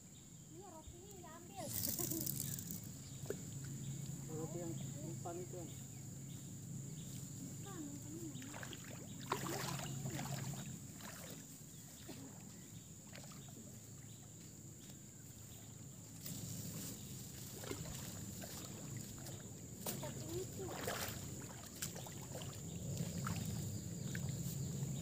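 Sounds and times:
water lapping and splashing: 7.7s - 14.4s, 17.3s - 25.0s.

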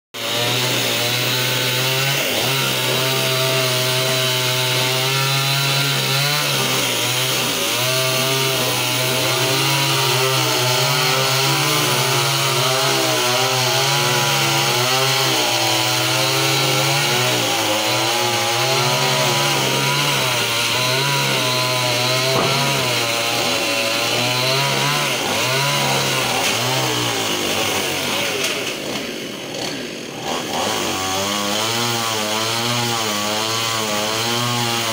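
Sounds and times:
chainsaw running: 0.2s - 34.9s.

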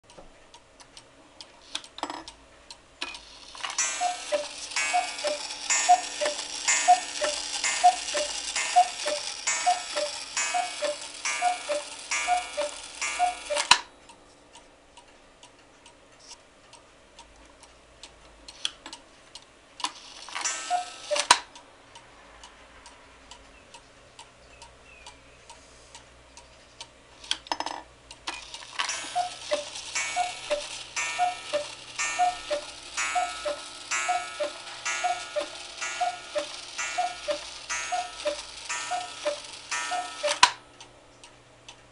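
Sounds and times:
clock pendulum ticking: 0.1s - 14.2s, 16.6s - 41.0s
two-note cuckoo clock calls: 3.7s - 13.9s, 20.4s - 21.5s, 28.8s - 40.6s.

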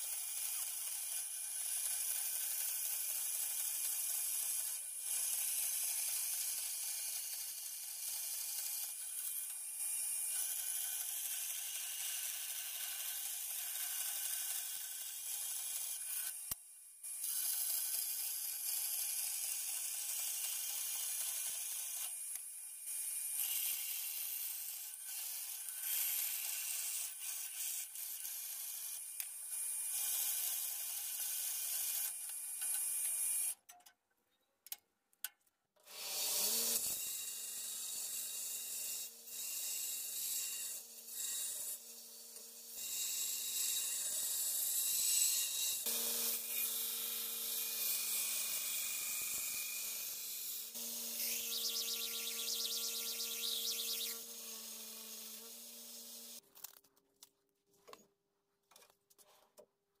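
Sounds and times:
band saw cutting steel: 35.9s - 56.4s
belt grinder grinding steel: 39.7s - 56.4s.

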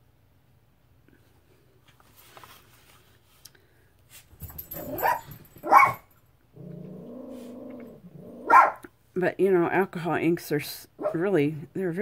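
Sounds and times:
pet calling: 6.8s - 8.9s.

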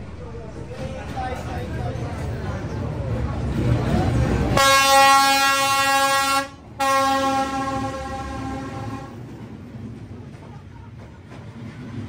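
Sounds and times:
locomotive horn blasts: 4.6s - 9.2s.

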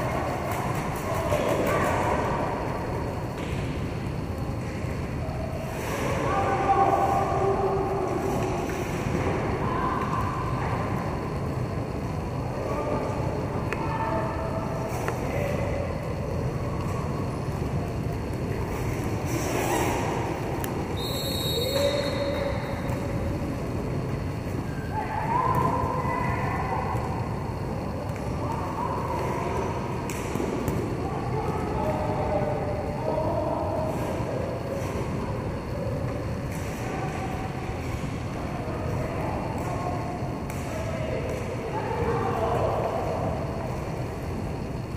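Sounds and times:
skate wheels rolling on court: 14.6s - 26.0s
distant shouts: 19.5s - 23.3s, 24.6s - 29.8s.

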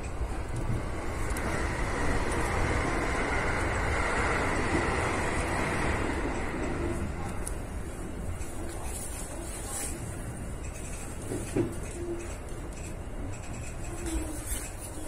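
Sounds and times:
train rolling rumble: 0.0s - 15.0s.

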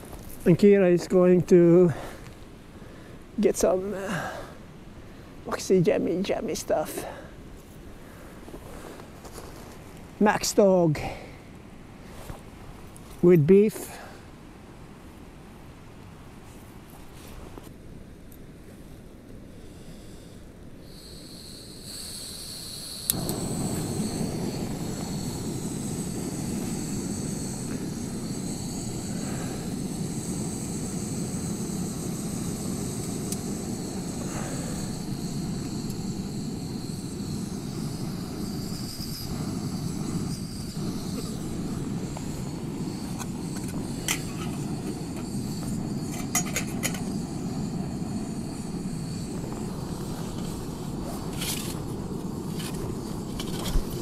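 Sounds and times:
gas burner roaring: 20.0s - 54.0s.

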